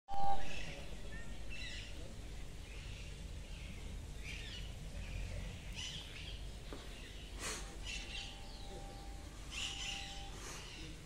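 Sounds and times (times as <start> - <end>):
brief loud tone: 0.1 - 0.7
low background rumble: 0.1 - 11.0
small birds chirping: 0.2 - 11.0.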